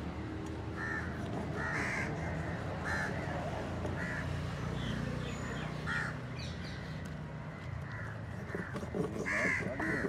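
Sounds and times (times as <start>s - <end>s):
crows cawing: 0.8s - 4.4s, 5.8s - 6.2s, 7.6s - 10.0s.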